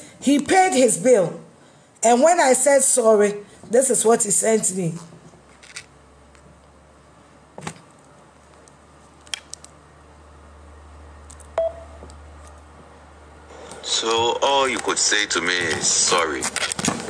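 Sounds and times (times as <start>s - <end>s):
low steady hum: 0.0s - 16.6s
brief beep: 11.6s - 12.0s.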